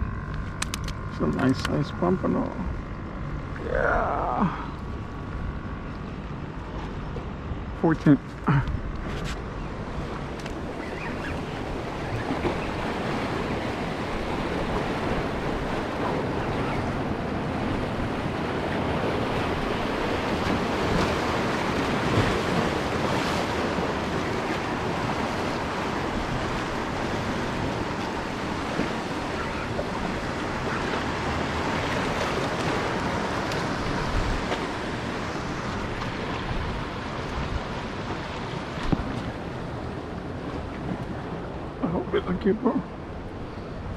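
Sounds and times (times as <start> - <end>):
wind on microphone: 8.6 - 41.9
surf breaking against rocks: 10.4 - 41.8.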